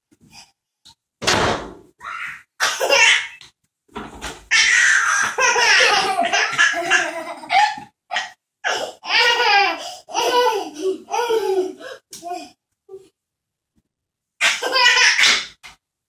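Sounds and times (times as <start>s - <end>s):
children giggling and laughing: 5.3s - 7.8s.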